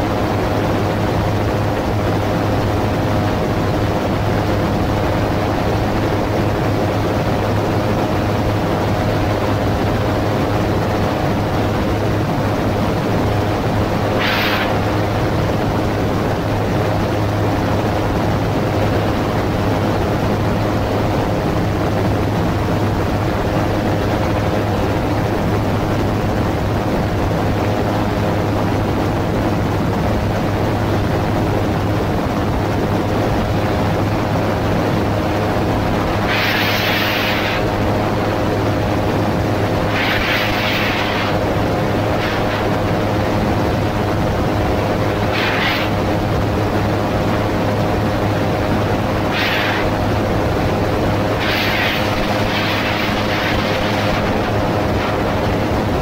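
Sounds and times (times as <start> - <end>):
propeller engine drone: 0.0 - 56.0
wind rushing: 35.0 - 44.1, 49.2 - 55.9.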